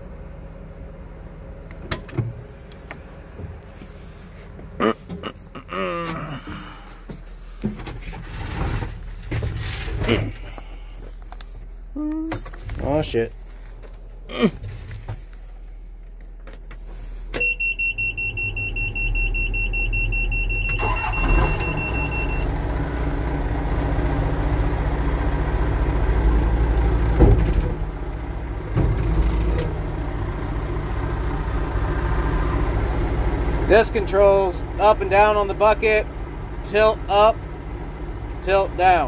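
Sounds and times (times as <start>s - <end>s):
diesel engine idling: 0.0s - 39.0s
starter motor cranking: 20.7s - 21.9s
clunk: 27.1s - 27.8s, 28.6s - 29.8s.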